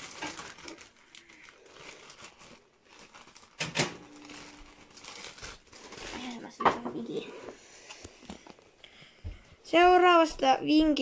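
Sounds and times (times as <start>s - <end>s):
plastic bag rustling and crinkling: 0.0s - 8.7s.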